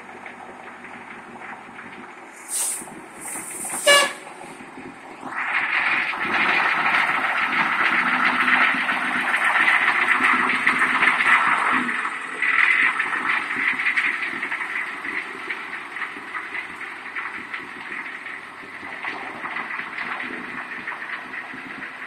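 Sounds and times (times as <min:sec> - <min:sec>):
diesel bus engine idling: 0:00.0 - 0:05.3
bus engine pulling away loudly: 0:00.0 - 0:19.5
air brakes hissing: 0:02.4 - 0:04.6.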